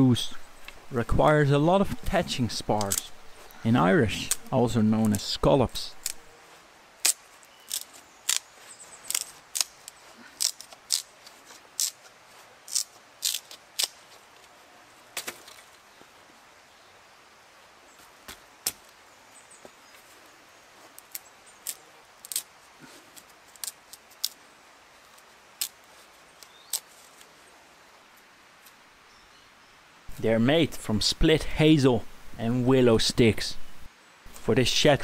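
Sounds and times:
wood sticks cracking as split: 0:01.9 - 0:03.2, 0:04.2 - 0:05.2, 0:05.9 - 0:06.3, 0:07.0 - 0:14.5, 0:15.2 - 0:15.8, 0:20.9 - 0:24.4, 0:25.1 - 0:27.3.

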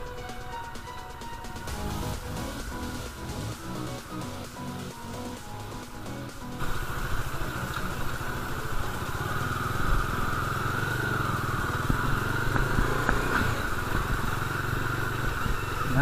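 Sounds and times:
motorcycle engine running: 0:05.6 - 0:16.0.

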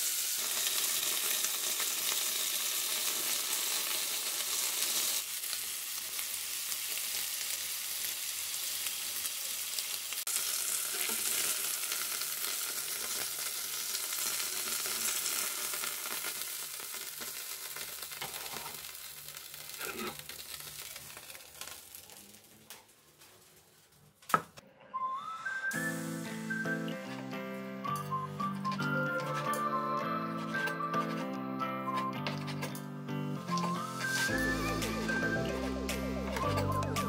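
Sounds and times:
chicken sizzling on a grill pan: 0:00.0 - 0:22.6, 0:25.7 - 0:27.2.

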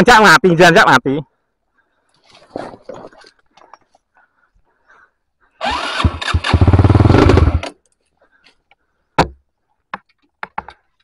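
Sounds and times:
motorcycle electric starter cranking: 0:05.6 - 0:07.8.

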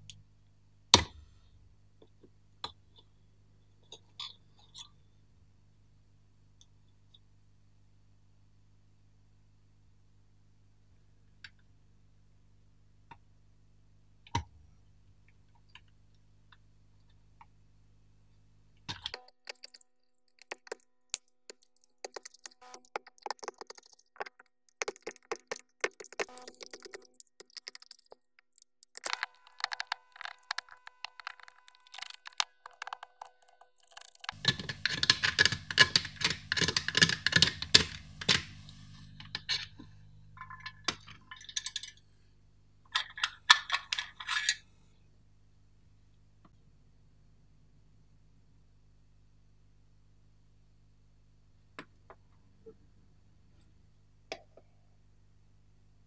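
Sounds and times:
low steady hum: 0:00.0 - 0:56.0
sharp clicks: 0:18.9 - 0:38.5.

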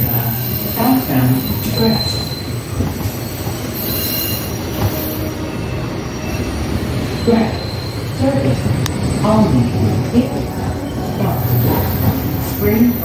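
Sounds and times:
rumble of wheels on rail: 0:00.0 - 0:13.0
high-pitched wheel squeal: 0:03.2 - 0:08.2.

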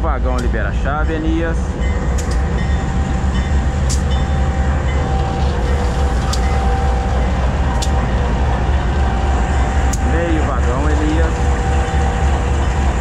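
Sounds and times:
locomotive engine rumble: 0:00.0 - 0:13.0
sharp ticks: 0:02.2 - 0:02.5, 0:09.9 - 0:10.1.

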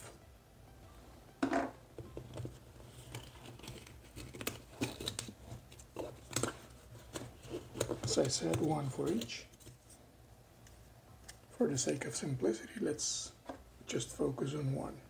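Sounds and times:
hands rustling fabric case: 0:02.0 - 0:09.8.

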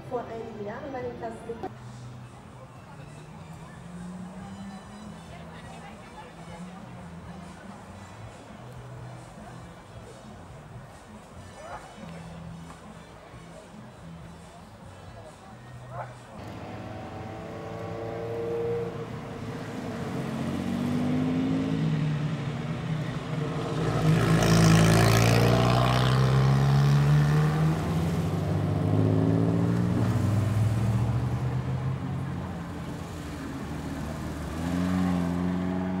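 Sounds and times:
sports cars accelerating past: 0:16.4 - 0:36.0.

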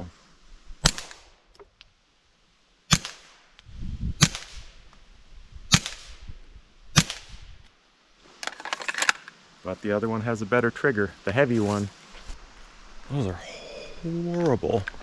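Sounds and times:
pistol shots: 0:07.0 - 0:07.3.

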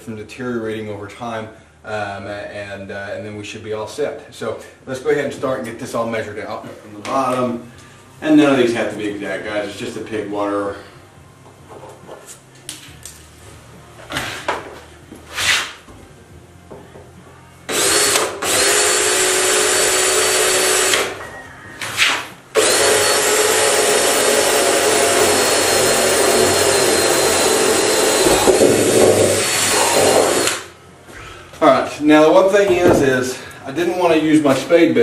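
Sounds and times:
power drill boring into plastic: 0:17.7 - 0:21.1, 0:22.6 - 0:30.6.

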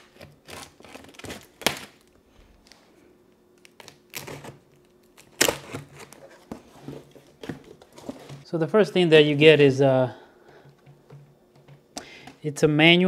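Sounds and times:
packing tape being cut: 0:00.0 - 0:02.8, 0:03.6 - 0:06.6.

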